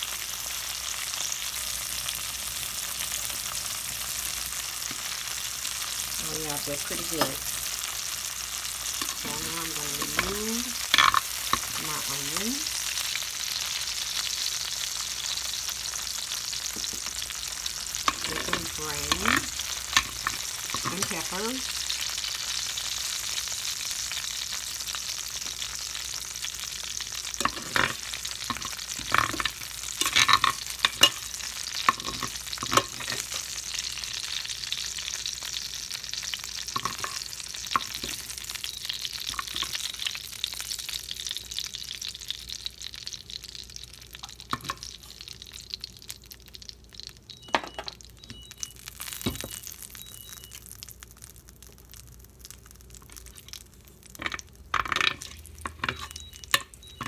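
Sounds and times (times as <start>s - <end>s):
oil sizzling in a skillet: 0.0s - 57.0s
metal spoon scraping a pan: 8.9s - 12.2s, 18.1s - 21.3s, 27.4s - 33.5s, 36.8s - 37.2s, 54.2s - 56.6s.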